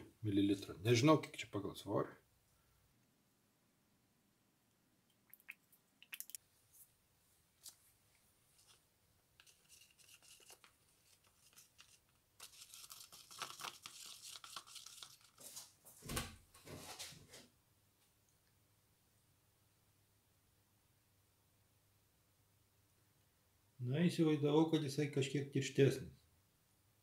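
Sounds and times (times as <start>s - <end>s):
stick scraping a plastic cup: 9.4s - 13.3s.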